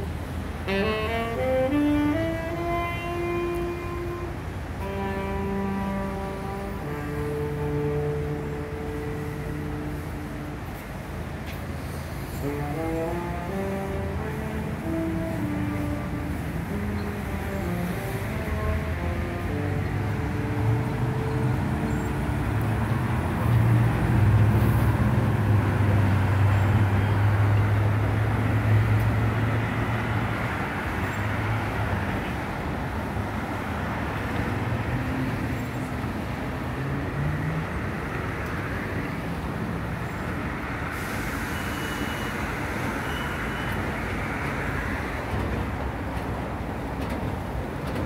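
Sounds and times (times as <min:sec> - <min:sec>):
road noise from passing cars: 0:00.0 - 0:48.0.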